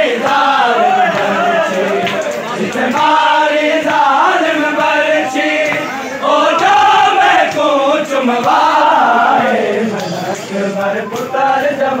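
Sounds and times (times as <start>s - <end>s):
men chanting a lament: 0.0s - 12.0s.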